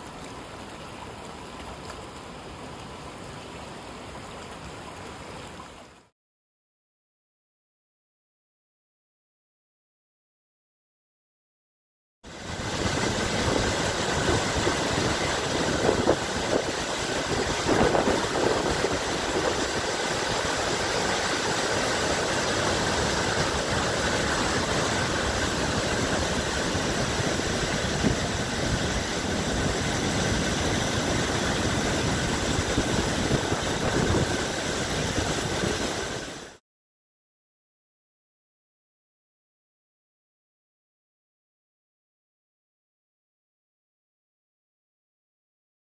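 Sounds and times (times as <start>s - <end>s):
river water rushing over waterfall: 12.3s - 36.6s.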